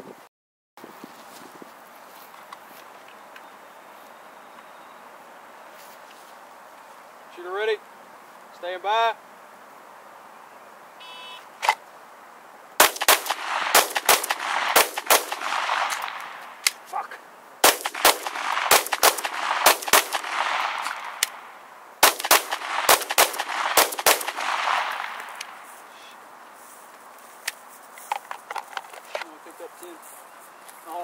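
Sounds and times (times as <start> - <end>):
pistol shots echoing: 12.8 - 16.7, 17.6 - 25.6.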